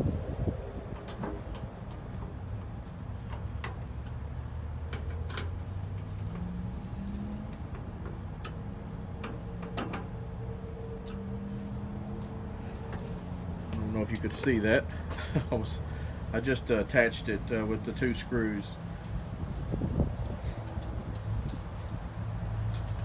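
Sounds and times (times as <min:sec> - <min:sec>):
steady low hum: 0:00.0 - 0:22.9.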